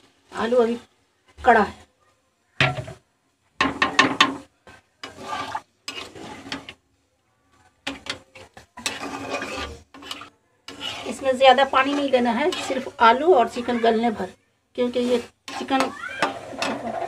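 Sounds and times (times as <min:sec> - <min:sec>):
metal spatula scraping a pan: 0:03.6 - 0:06.8, 0:07.5 - 0:17.0.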